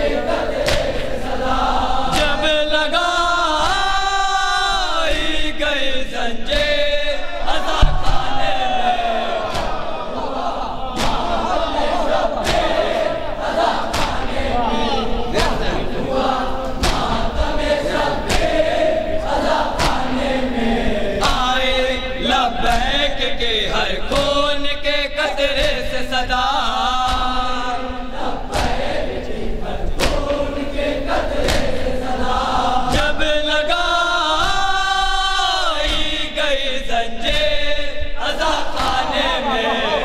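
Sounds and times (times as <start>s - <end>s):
men chanting a lament: 0.0s - 40.0s
chest-strike beat: 7.7s - 10.0s.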